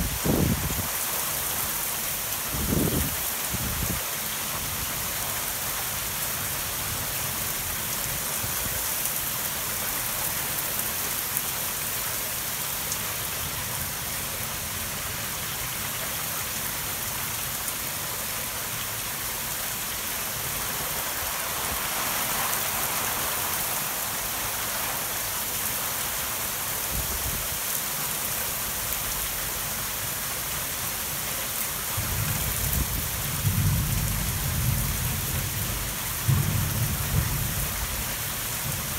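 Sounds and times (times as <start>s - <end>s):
heavy rain pouring: 0.0s - 38.9s
low rumble of thunder: 32.0s - 38.9s.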